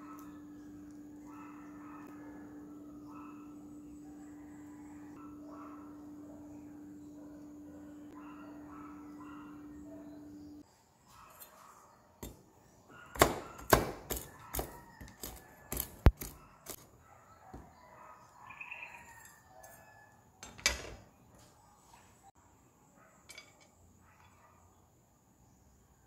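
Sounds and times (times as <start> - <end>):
knife chopping on wooden board: 13.1 - 16.4.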